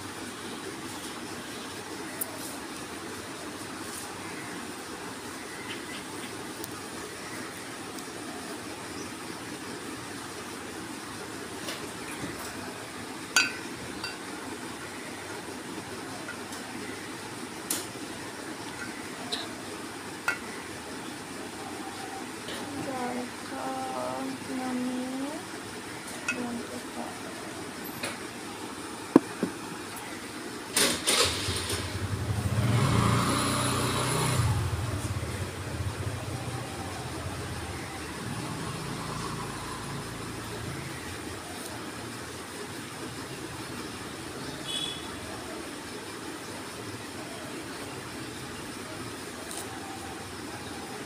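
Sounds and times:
steady background hiss: 0.0s - 51.0s
motor engine hum: 29.1s - 30.1s, 31.1s - 41.3s.

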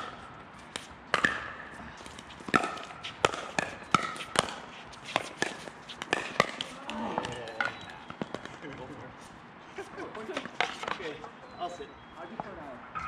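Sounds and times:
paddles hitting plastic ball: 0.0s - 8.6s.

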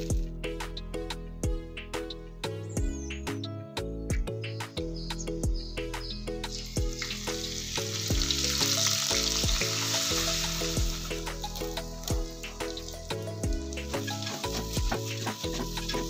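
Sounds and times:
background music with steady beat: 0.0s - 16.0s
hot oil sizzling: 6.4s - 16.0s.

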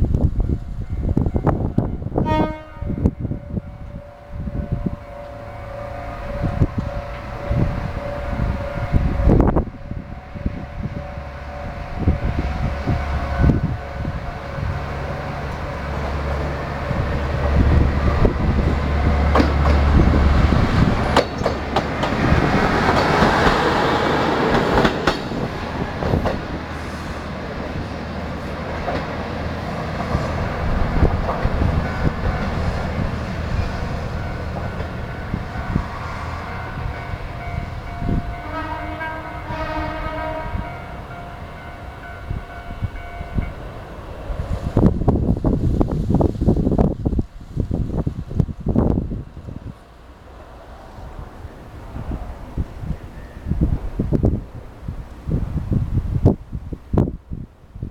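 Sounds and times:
railcar diesel engine: 0.0s - 57.9s
wheel clacks over rail joints: 19.2s - 26.6s.

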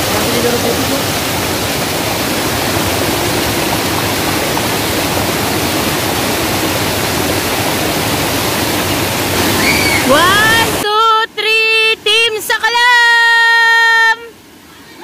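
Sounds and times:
waterfall rushing: 0.0s - 10.9s.

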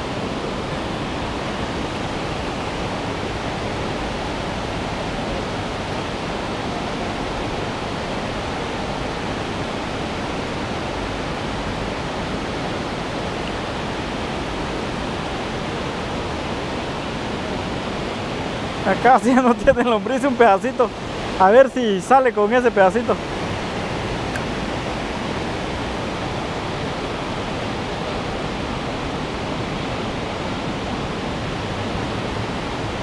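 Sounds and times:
river water rushing: 0.0s - 33.0s.

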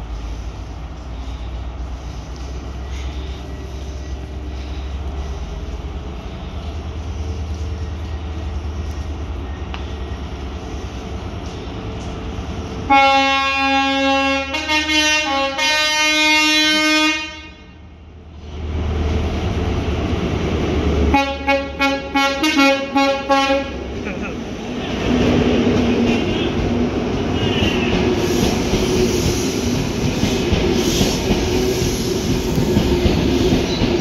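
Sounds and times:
train rumbling: 0.0s - 34.0s
two-tone train horn: 12.9s - 17.9s, 21.1s - 23.8s, 27.3s - 28.0s.

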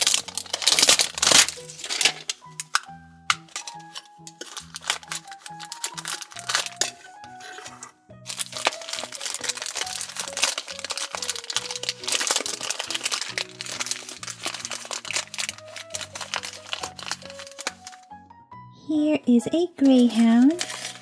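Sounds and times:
plastic bag crinkling: 0.0s - 18.0s, 19.8s - 21.0s
background music: 0.0s - 21.0s.

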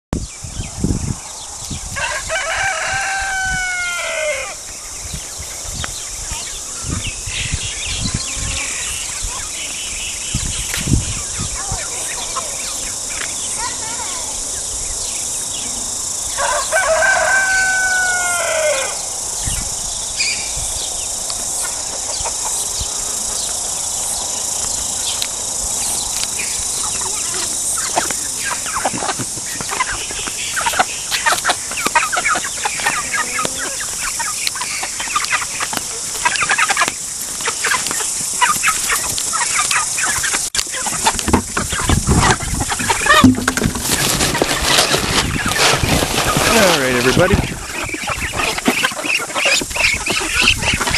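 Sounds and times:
steady high hiss: 0.2s - 44.0s
rooster crowing: 1.9s - 4.6s, 16.3s - 19.2s
chickens clucking: 1.9s - 50.9s.

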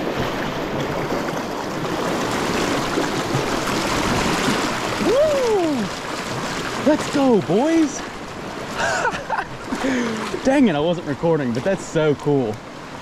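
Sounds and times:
stream rushing over rocks: 0.0s - 13.0s
man exclaiming: 5.0s - 5.9s.

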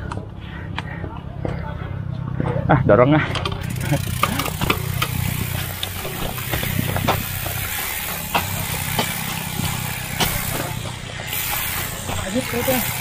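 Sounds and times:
bike tyre and wind rumble: 0.0s - 13.0s
chain and frame clicking: 3.3s - 13.0s.

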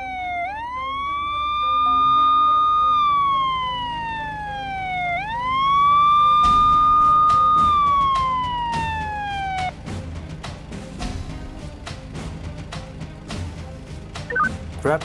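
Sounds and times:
police siren wailing: 0.0s - 9.7s.

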